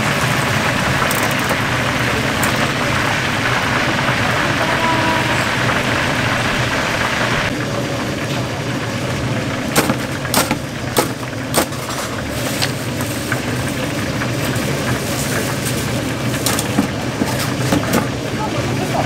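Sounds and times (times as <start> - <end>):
metal basket clanking on steel tray: 1.0 - 1.6, 9.8 - 12.7, 15.6 - 18.2.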